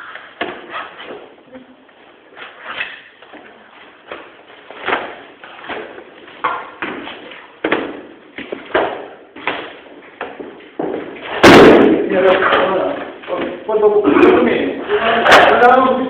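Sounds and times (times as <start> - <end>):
knocks and thuds of flooring work: 4.0 - 13.6.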